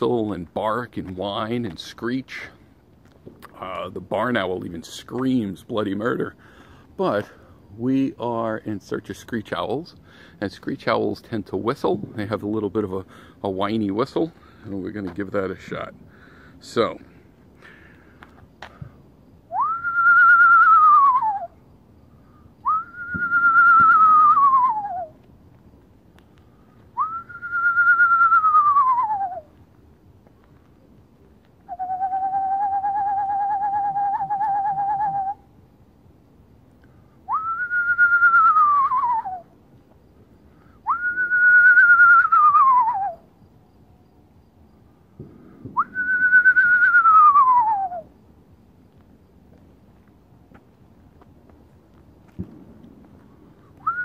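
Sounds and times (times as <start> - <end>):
person whistling owl imitation: 19.5 - 21.6, 22.6 - 25.2, 27.0 - 29.5, 31.6 - 35.5, 37.3 - 39.5, 40.8 - 43.3, 45.7 - 48.1.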